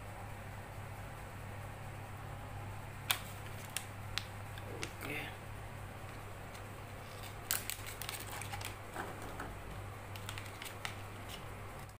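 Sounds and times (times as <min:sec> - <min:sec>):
steady low hum: 0:00.0 - 0:12.0
sachet crinkling: 0:03.1 - 0:05.0, 0:06.5 - 0:09.4, 0:10.1 - 0:11.9.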